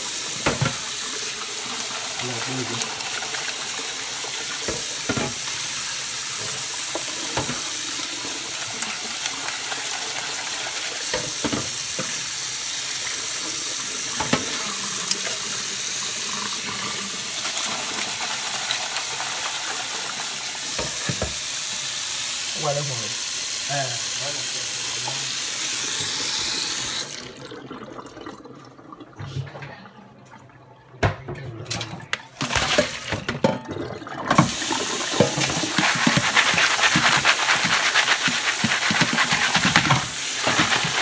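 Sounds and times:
tap running into steel sink: 20.7s - 21.4s.

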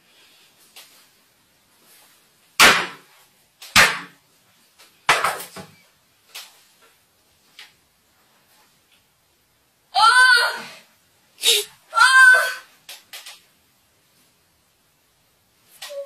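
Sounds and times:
hammer blows cracking phone: 2.6s - 3.1s, 3.7s - 4.2s.

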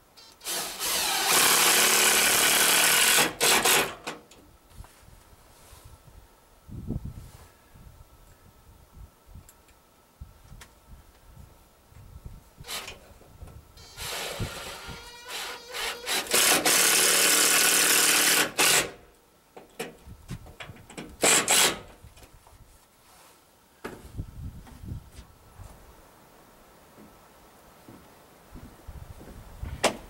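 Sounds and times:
cordless drill driving screw: 0.2s - 4.1s, 12.7s - 13.0s, 13.8s - 19.0s, 21.2s - 21.9s.

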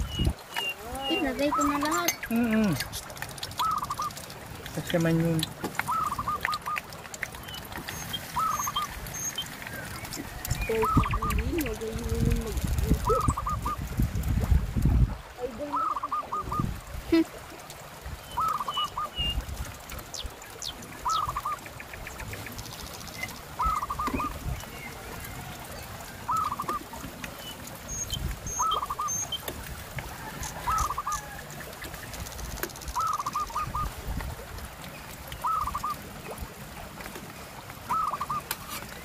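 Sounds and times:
animal calling: 0.0s - 4.2s, 5.4s - 13.8s, 15.4s - 17.2s, 23.6s - 25.4s, 26.1s - 29.4s, 30.2s - 31.7s, 35.4s - 36.0s, 37.9s - 38.8s.

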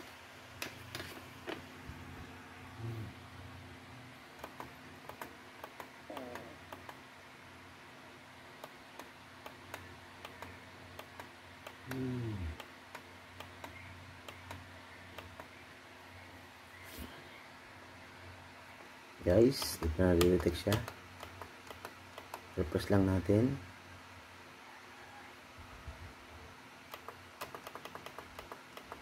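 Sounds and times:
low hum: 1.6s - 6.9s.

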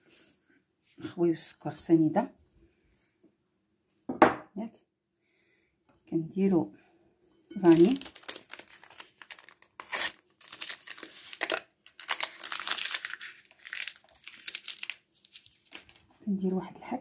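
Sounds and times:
paper sachet tearing and crinkling: 7.6s - 16.1s.

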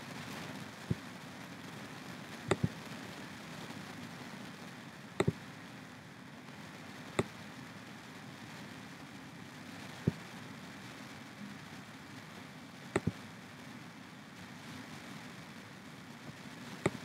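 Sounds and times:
faint hiss: 0.0s - 17.0s
computer mouse clicking: 2.5s - 2.7s, 13.0s - 13.2s.

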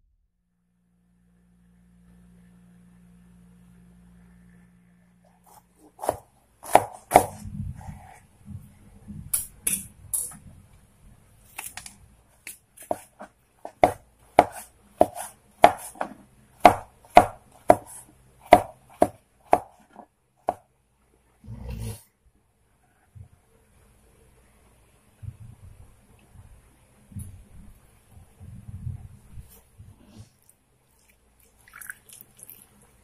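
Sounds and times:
knife chopping on wooden board: 5.5s - 8.1s, 12.8s - 20.6s.

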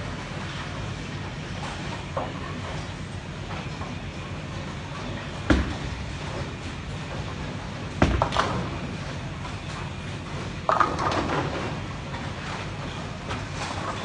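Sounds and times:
bowling balls rolling: 4.6s - 14.0s
bowling pins clattering: 5.0s - 9.8s, 10.6s - 14.0s.

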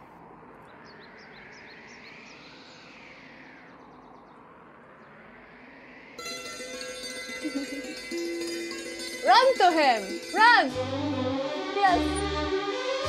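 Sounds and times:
birds chirping: 0.5s - 5.4s.

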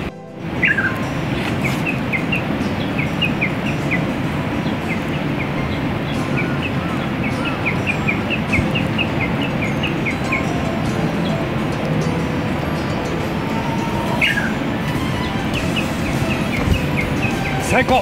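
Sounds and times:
small bird chirping: 0.0s - 11.4s
steady rushing noise: 0.0s - 18.0s.

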